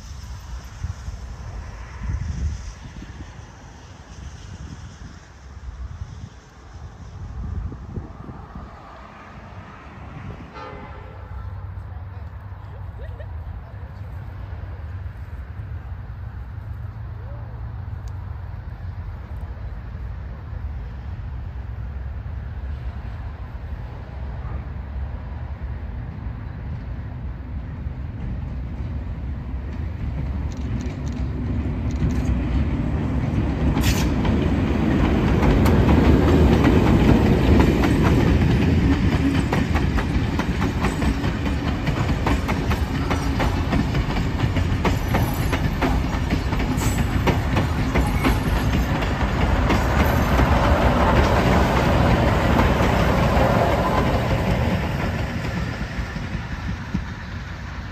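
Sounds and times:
train running on rails: 0.0 - 57.9
wheels clicking over rail joints: 33.3 - 57.6.

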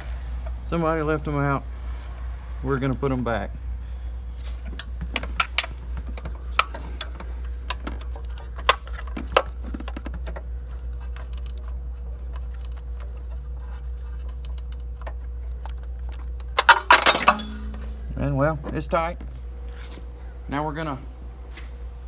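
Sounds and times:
ratchet wrench clicking: 0.0 - 0.2
steady low hum: 0.0 - 22.0.

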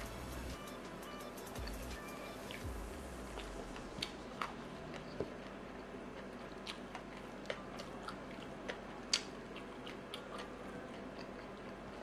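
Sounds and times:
faint steady hum: 0.0 - 12.0
person chewing food: 3.2 - 12.0.

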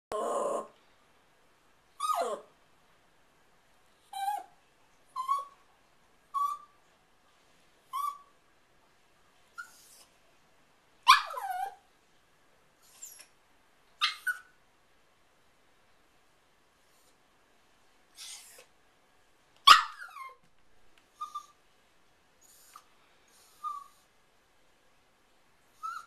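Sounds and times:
small dog barking: 11.0 - 11.8, 19.6 - 20.4.

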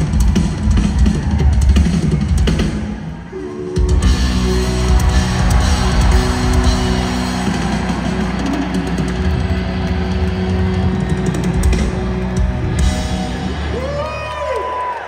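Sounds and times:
drums and cymbals: 0.0 - 14.2
distorted electric guitars: 3.6 - 14.1.

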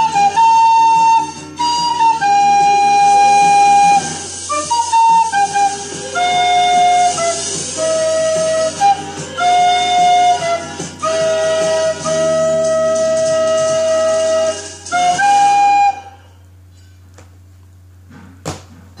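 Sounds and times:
recorder melody: 0.0 - 16.2.

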